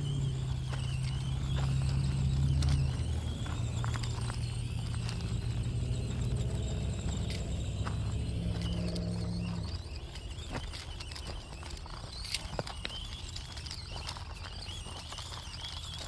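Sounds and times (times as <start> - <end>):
electric motor humming: 0.0 - 12.0
tyres clicking on gravel: 0.0 - 16.0.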